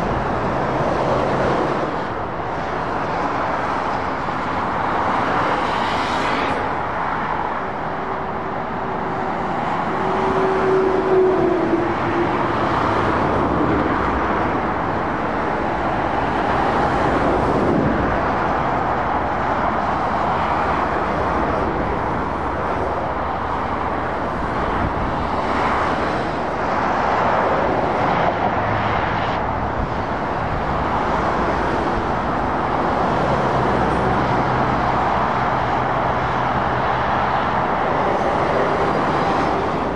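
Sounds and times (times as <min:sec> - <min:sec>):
road traffic passing: 0:00.0 - 0:39.9.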